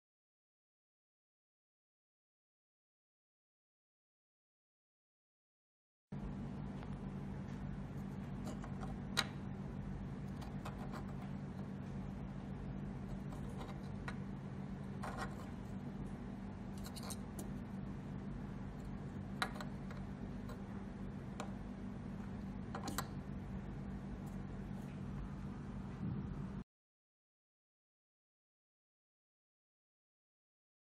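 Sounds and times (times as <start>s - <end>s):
steady low hum: 6.1s - 26.7s.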